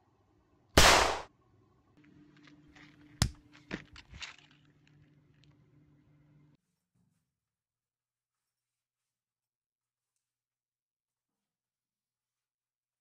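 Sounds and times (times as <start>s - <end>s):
low steady hum: 0.0s - 6.6s
handgun gunshot: 0.8s - 1.3s
sharp crack: 0.8s - 1.3s.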